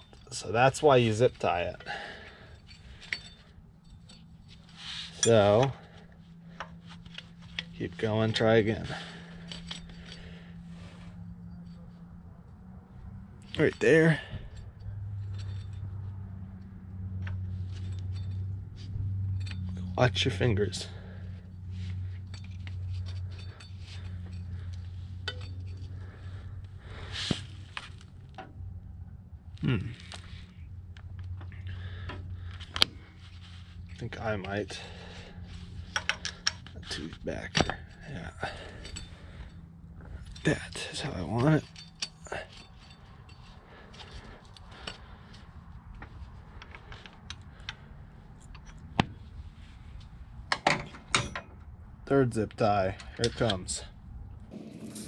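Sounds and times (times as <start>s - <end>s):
metallic clinks of tools on engine: 0.0s - 28.6s, 29.9s - 49.0s, 49.7s - 51.7s
low hum: 0.0s - 50.4s
clicks and taps on engine parts: 35.9s - 36.8s.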